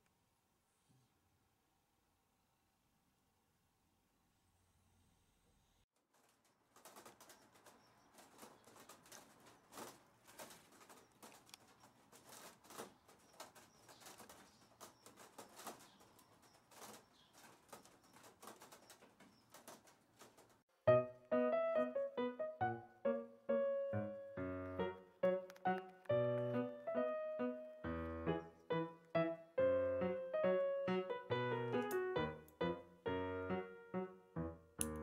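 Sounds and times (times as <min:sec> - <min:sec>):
soft clicks and rustles: 0:06.0 - 0:20.6.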